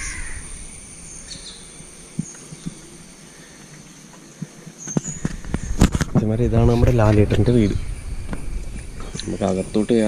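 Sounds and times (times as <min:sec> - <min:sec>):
high bird chirps: 0:00.0 - 0:02.8.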